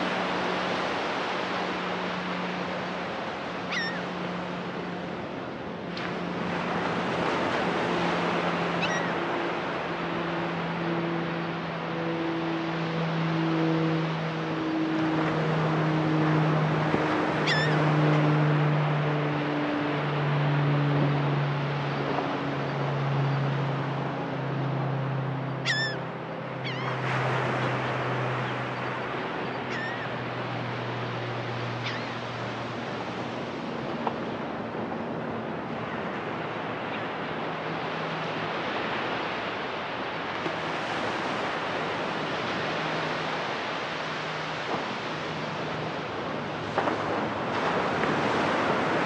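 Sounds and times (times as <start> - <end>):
boat engine hum: 0.0 - 49.0
gull calls: 3.7 - 4.1, 8.8 - 9.2, 17.4 - 17.9, 25.6 - 26.0, 26.6 - 27.0, 29.6 - 30.2, 31.8 - 32.2
ocean surf breaking: 26.6 - 49.0.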